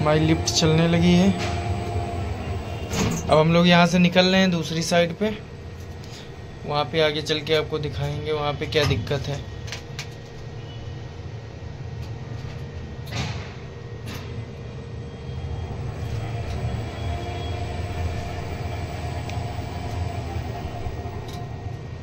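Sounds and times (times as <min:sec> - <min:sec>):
elevator motor and gearbox hum: 0:00.0 - 0:22.0
faint whine: 0:13.8 - 0:22.0.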